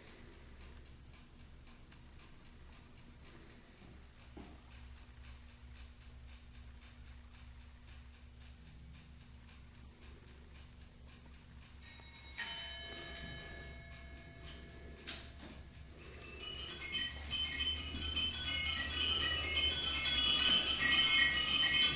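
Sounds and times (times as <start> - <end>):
clock ticking: 0.0 - 21.9
clock bell striking: 11.8 - 21.9.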